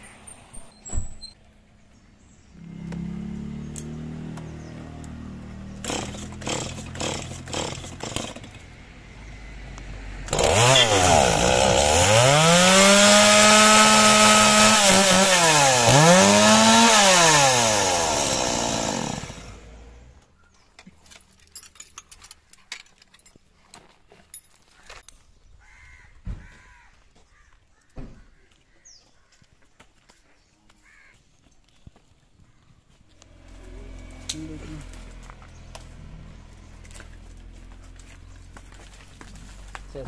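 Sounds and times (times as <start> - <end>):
chainsaw engine revving: 2.6 - 8.8, 10.2 - 20.2, 33.2 - 38.2
chainsaw pull cord: 5.8 - 8.7, 10.3 - 19.7.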